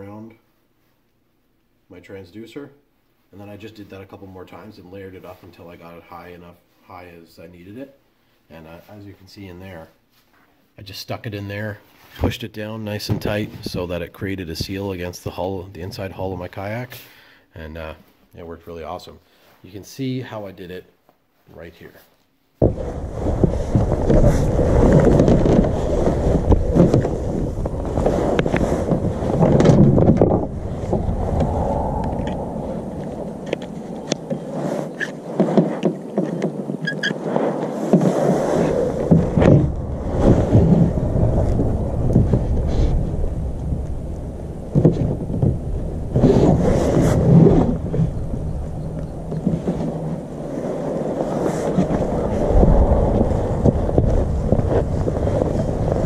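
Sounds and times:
wind buffeting microphone: 0:22.6 - 0:36.9, 0:38.2 - 0:56.0.

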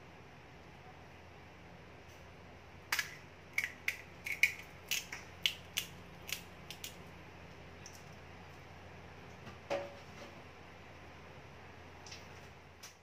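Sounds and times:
fried shell cracking: 0:02.9 - 0:07.0.

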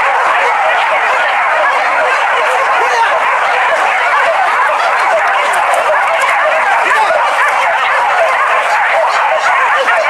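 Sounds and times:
dogs barking and yelping: 0:00.0 - 0:10.0.

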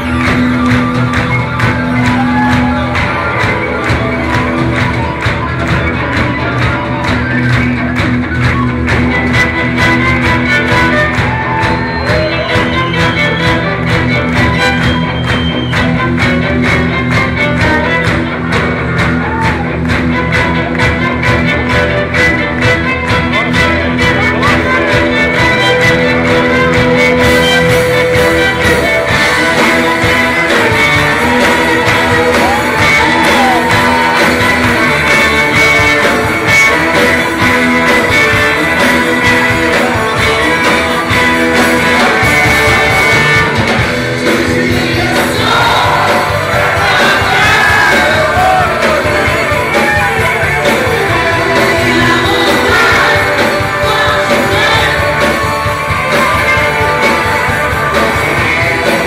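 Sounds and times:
live rock band playing: 0:00.0 - 0:59.0
lead vocals singing: 0:29.1 - 0:43.5, 0:44.1 - 0:59.0.

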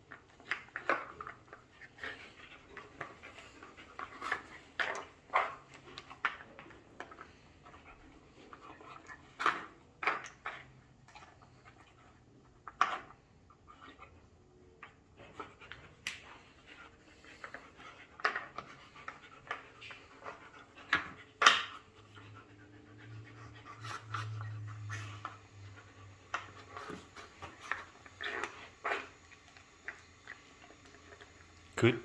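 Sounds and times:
dog sniffing and panting: 0:00.1 - 0:12.5, 0:15.1 - 0:31.5.

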